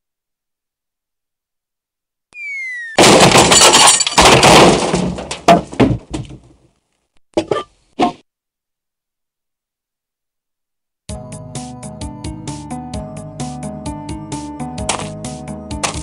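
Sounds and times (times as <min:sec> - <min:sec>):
cartoon falling whistle: 0:02.3 - 0:03.0
loud crash with breaking: 0:03.0 - 0:06.2.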